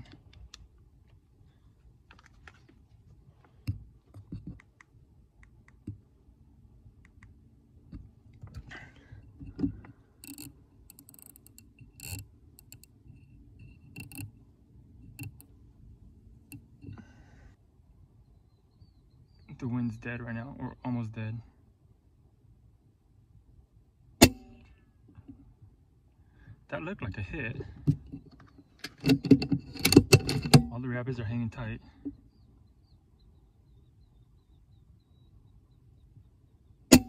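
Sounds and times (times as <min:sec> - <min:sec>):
air rifle handling clicks: 0:10.2 - 0:12.9.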